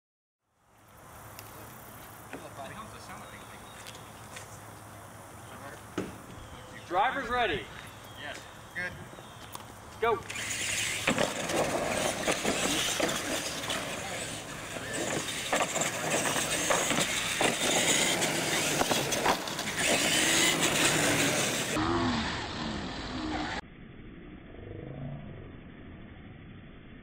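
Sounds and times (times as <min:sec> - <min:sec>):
toy truck motors whining: 0:10.0 - 0:23.6
trucks knocking and clattering: 0:10.3 - 0:21.8.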